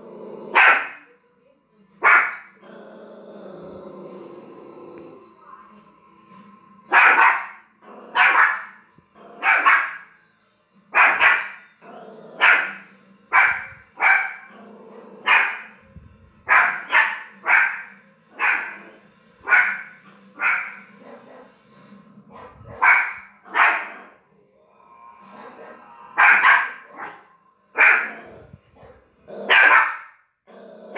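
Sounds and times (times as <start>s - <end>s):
dog barking: 0.5s - 1.0s, 2.0s - 2.6s, 6.9s - 8.8s, 9.4s - 10.1s, 10.9s - 11.7s, 12.4s - 14.5s, 15.2s - 15.7s, 16.5s - 21.5s, 22.3s - 24.1s, 25.4s - 27.2s, 27.8s - 30.2s.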